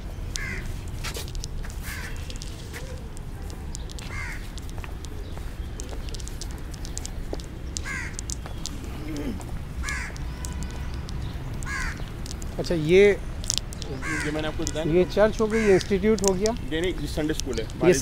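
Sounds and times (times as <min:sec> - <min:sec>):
footsteps clicking: 0:00.0 - 0:18.0
low city hum: 0:00.0 - 0:18.0
crows cawing: 0:00.4 - 0:00.7, 0:01.8 - 0:02.5, 0:04.0 - 0:04.6, 0:07.7 - 0:12.6, 0:13.8 - 0:16.5.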